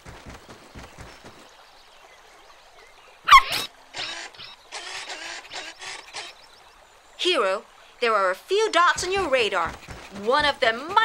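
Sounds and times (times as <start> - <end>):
cartoon puppy yelp: 3.3 - 4.2.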